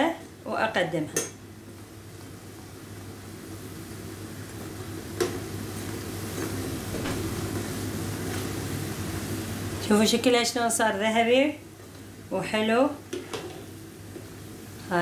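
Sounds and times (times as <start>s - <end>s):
oil sizzling: 0.2s - 15.0s.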